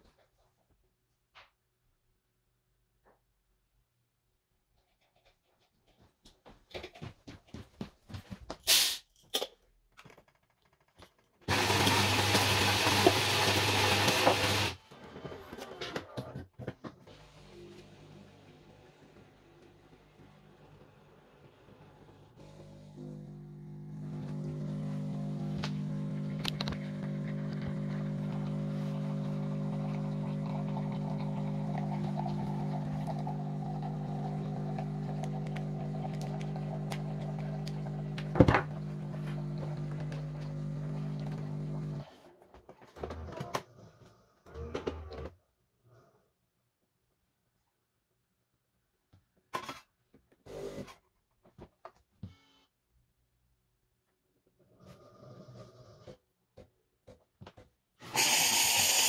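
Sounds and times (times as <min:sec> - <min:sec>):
water pump humming: 0:22.4 - 0:42.0, 0:58.0 - 0:59.0.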